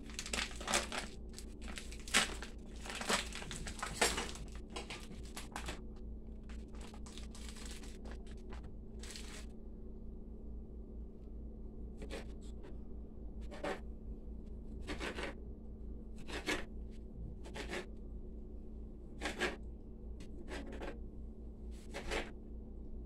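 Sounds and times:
steady low hum: 0.0 - 23.0
knife cutting on plastic board: 14.8 - 15.4, 16.2 - 16.7, 17.5 - 17.9, 19.2 - 19.6, 20.4 - 21.0, 21.8 - 22.3.

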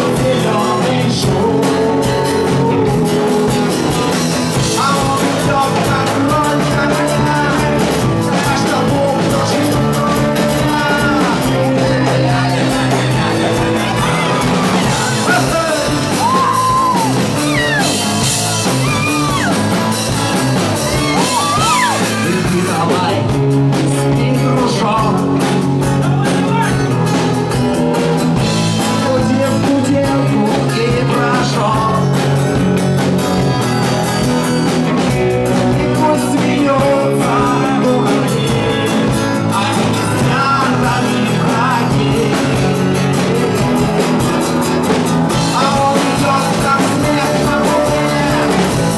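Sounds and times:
man singing: 0.0 - 27.4, 28.3 - 48.9
bass guitar: 0.0 - 48.9
drums: 0.0 - 48.9
electric guitars: 0.0 - 48.9.

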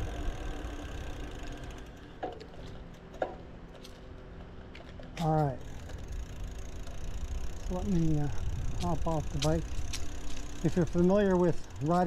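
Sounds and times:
bicycle freehub ticking: 0.0 - 2.6, 5.5 - 12.0
tyre and wind rumble: 5.6 - 11.0.

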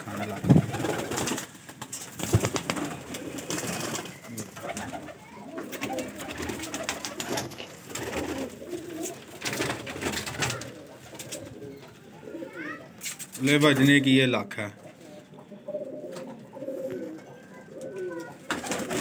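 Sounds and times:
pigeons cooing: 0.0 - 19.0
sharp clicks and rustles: 13.0 - 13.8.

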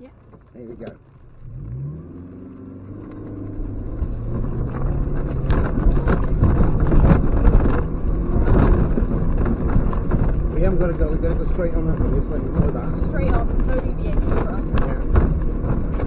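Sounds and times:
car engine revving: 0.0 - 16.0
wheels knocking over rocky ground: 4.0 - 16.0.

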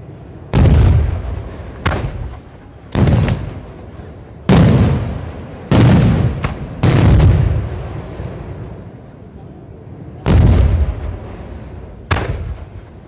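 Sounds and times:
sharp firework cracks: 0.5 - 8.2, 12.0 - 13.0
firework shells booming: 0.5 - 8.5, 10.3 - 13.0.

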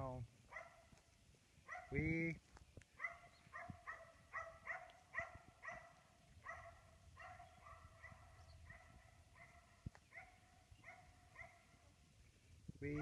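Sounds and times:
faint distant dog barking: 0.5 - 1.0, 1.6 - 2.3, 3.0 - 12.0.

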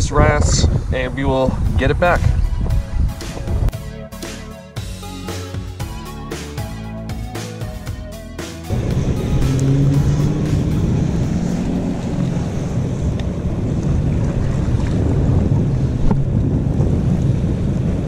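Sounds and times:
wind buffeting microphone: 0.0 - 3.8, 8.7 - 18.0
motorboat engine drone: 2.5 - 18.0.

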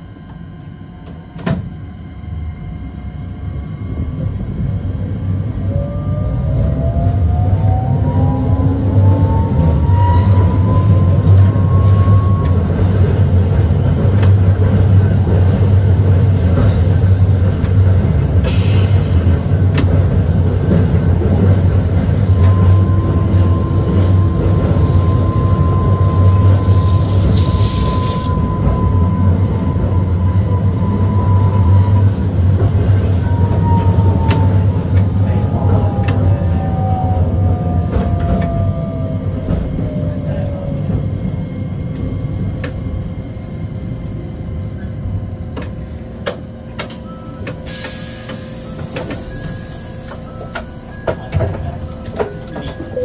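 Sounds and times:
tram rumble with motor whine: 0.0 - 53.0
brief hisses: 47.7 - 50.2.

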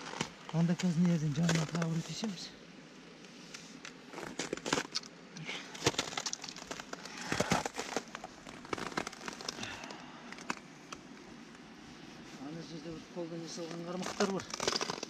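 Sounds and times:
boots crunching on icy snow: 5.8 - 9.6.

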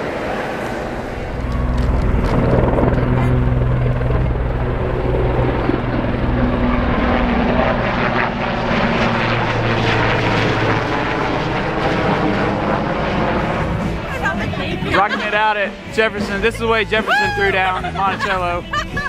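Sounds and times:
helicopter flying overhead: 0.0 - 19.0.

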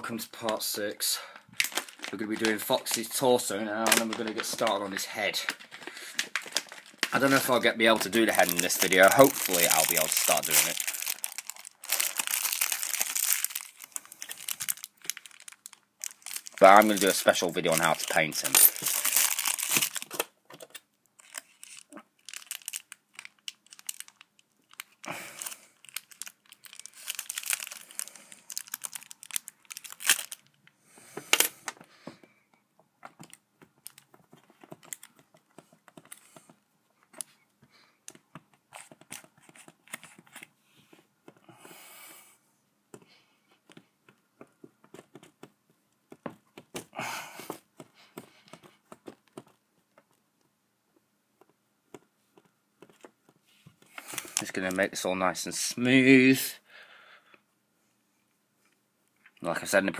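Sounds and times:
hands pressing modelling clay: 32.1 - 41.8, 42.8 - 54.7.

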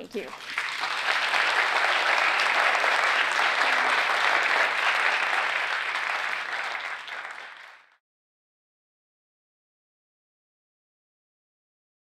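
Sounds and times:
audience applauding: 0.2 - 8.0.

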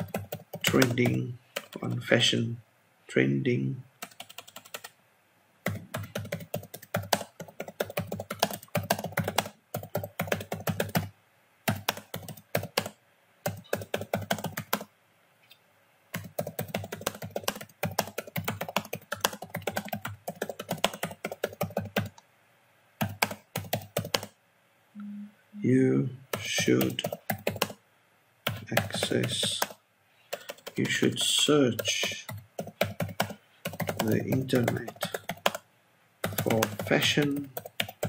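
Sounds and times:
computer keyboard typing: 0.0 - 2.1, 4.0 - 5.0, 5.6 - 11.1, 11.7 - 14.9, 16.1 - 22.2, 23.0 - 24.3, 26.3 - 27.8, 28.4 - 38.0.

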